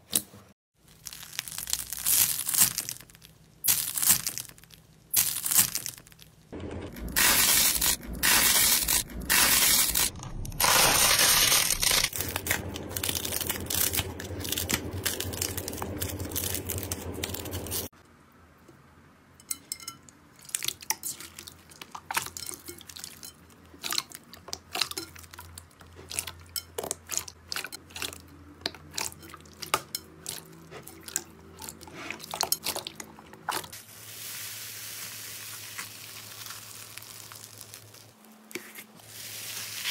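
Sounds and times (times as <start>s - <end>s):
slime crunching crackle: 0.8s - 6.5s, 7.1s - 17.9s, 35.2s - 38.5s.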